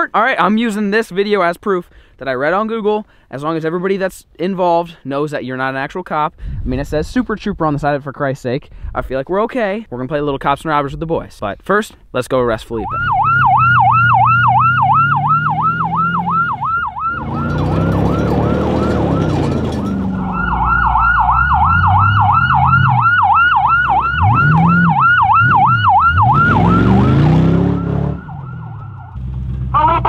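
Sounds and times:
tyres on dirt: 12.7 - 28.2
car engine revving: 12.8 - 30.0
police siren yelping: 12.8 - 30.0.

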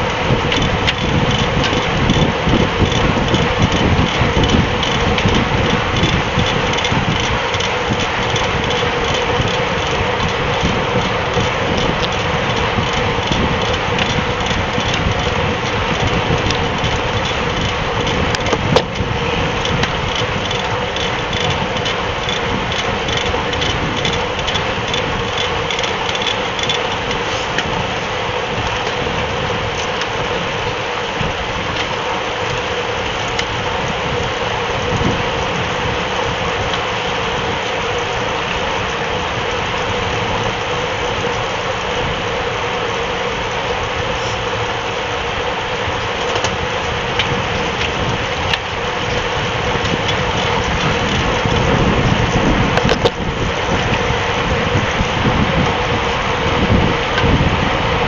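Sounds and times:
road noise: 0.0 - 58.0
wind noise: 0.0 - 58.0.

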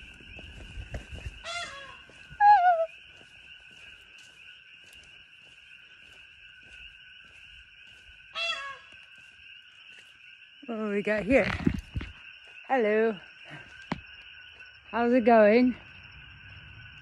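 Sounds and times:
peacock calling: 1.2 - 3.0, 8.3 - 9.1.

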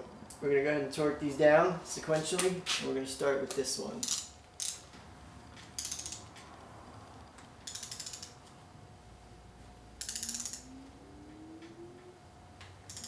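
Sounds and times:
torque wrench ratcheting: 4.0 - 4.9, 5.8 - 6.4, 7.6 - 8.5, 10.0 - 10.7.

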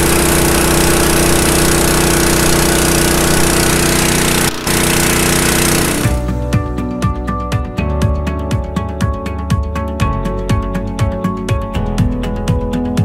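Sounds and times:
air compressor engine running: 0.0 - 6.4
background music: 6.0 - 13.0.

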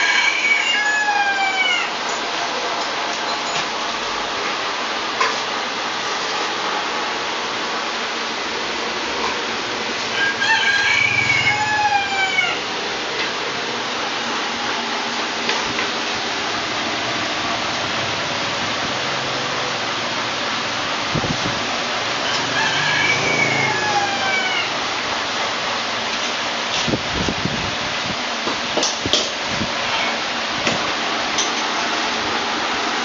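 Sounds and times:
rooster crowing: 0.0 - 2.0, 10.1 - 12.8, 22.0 - 25.1.

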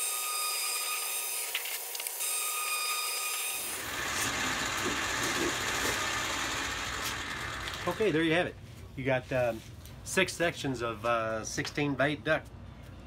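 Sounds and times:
steady machine whine: 3.7 - 8.2.

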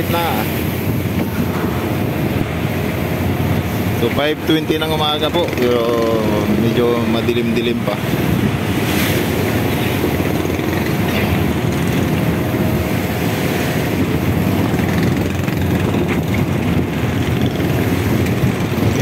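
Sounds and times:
boat engine rumbling: 0.0 - 19.0.

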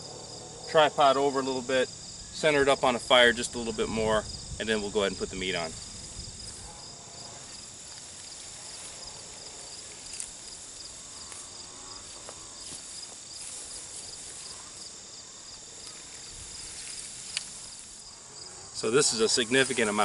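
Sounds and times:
insects chirping: 0.0 - 20.0.

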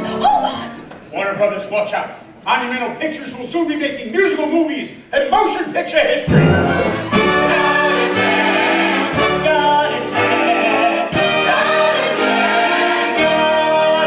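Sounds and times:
show tune with chorus singing: 6.3 - 14.0.

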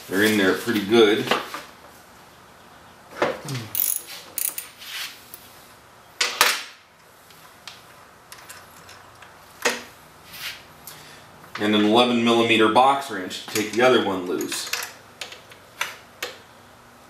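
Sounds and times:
socket ratchet clicking: 3.8 - 4.6.

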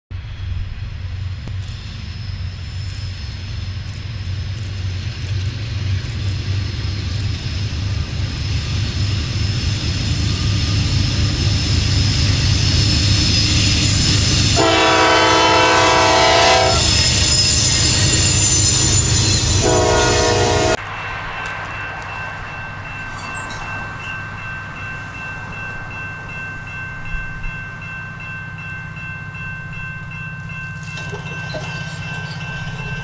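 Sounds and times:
diesel locomotive engine rumble: 0.1 - 33.0
freight cars rolling past: 0.2 - 33.0
locomotive air horn chord: 14.6 - 17.1, 19.5 - 20.8.

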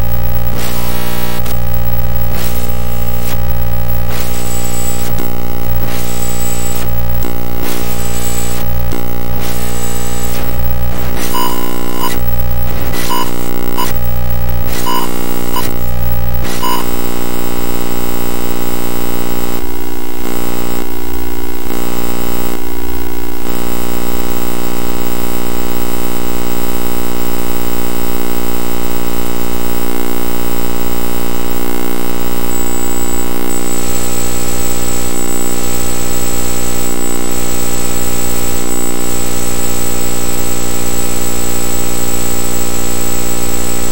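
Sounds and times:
high electronic whine: 0.0 - 20.9
harsh electronic buzzing drone: 0.0 - 43.9.

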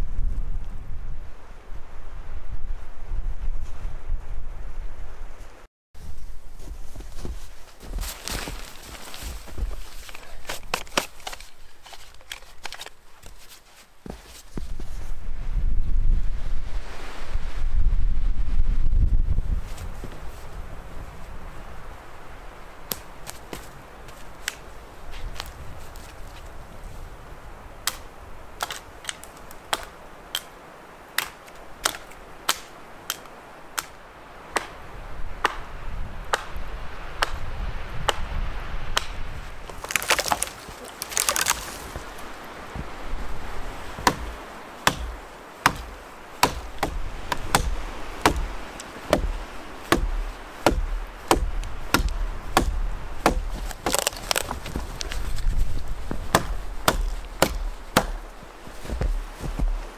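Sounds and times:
axe chopping wood: 28.6 - 30.5, 31.2 - 34.8, 35.4 - 35.6, 44.0 - 55.2, 56.1 - 59.9.

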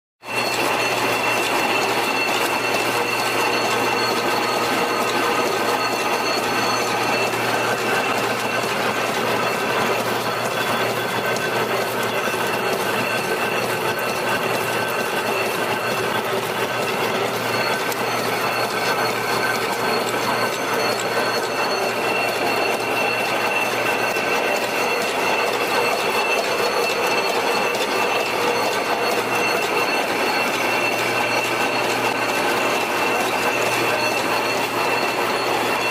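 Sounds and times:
high machine whine: 0.2 - 35.9
wire machine clattering: 0.3 - 35.9.

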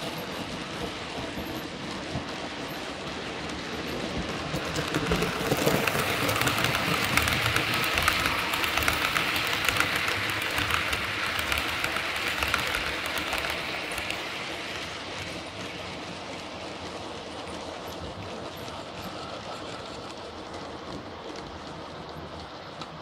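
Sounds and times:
model train wheels clattering: 0.0 - 23.0.

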